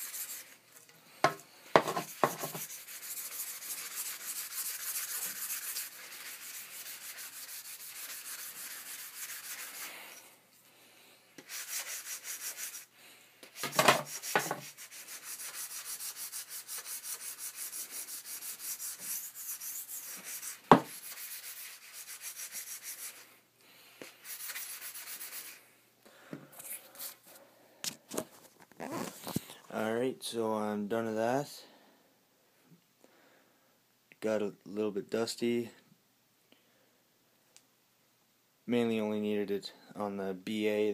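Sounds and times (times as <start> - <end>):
sandpaper rubbing on stick shaft: 0.0 - 0.6, 1.9 - 10.2, 11.4 - 12.9, 13.5 - 23.3, 24.1 - 25.6.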